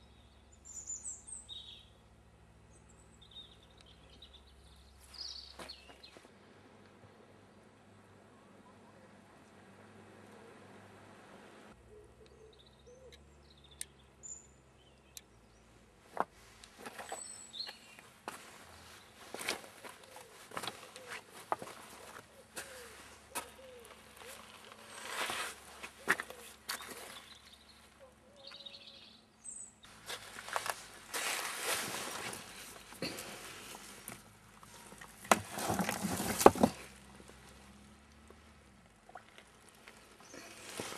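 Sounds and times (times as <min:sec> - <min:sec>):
small birds chirping: 0:02.7 - 0:06.3, 0:11.8 - 0:15.8, 0:16.9 - 0:30.8
rustle: 0:16.0 - 0:29.0, 0:29.9 - 0:40.9
footsteps crunching on stones: 0:16.1 - 0:27.6, 0:29.9 - 0:37.4.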